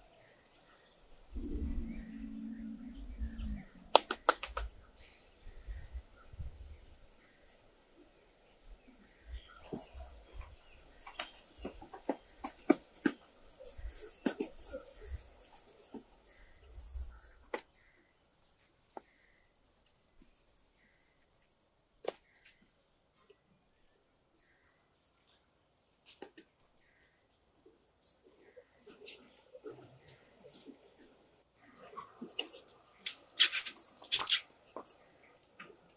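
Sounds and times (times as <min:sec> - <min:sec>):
insect drone: 0:00.0 - 0:35.9
sharp clicks and knocks: 0:03.9 - 0:04.7.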